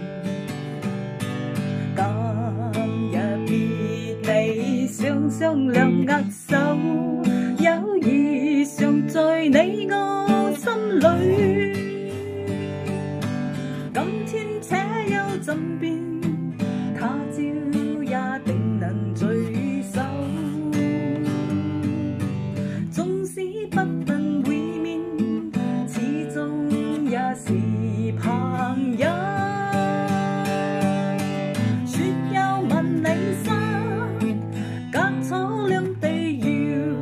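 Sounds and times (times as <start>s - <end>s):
acoustic guitar strumming: 0.0s - 37.0s
woman singing: 0.0s - 37.0s.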